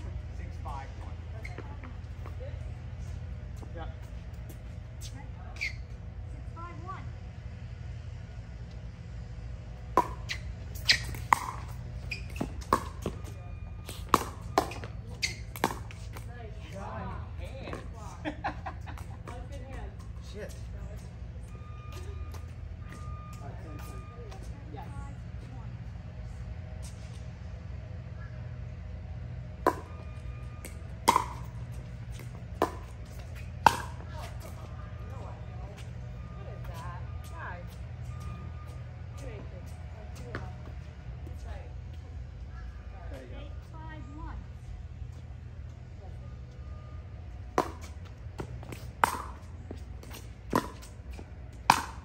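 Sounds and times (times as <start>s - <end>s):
steady low hum: 0.0s - 52.0s
paddles hitting plastic ball: 13.9s - 16.3s, 30.6s - 34.5s, 47.6s - 52.0s.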